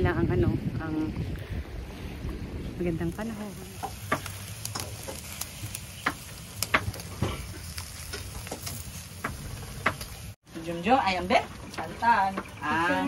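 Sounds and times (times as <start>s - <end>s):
food sizzling on grill: 2.7s - 13.0s
charcoal popping: 2.9s - 10.4s.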